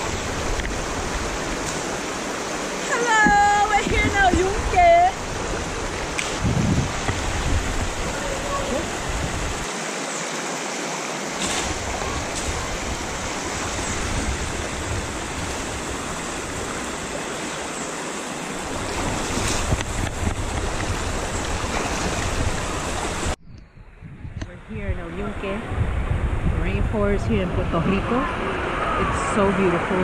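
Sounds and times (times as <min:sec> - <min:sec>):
river water rushing over rocks: 0:00.0 - 0:23.4.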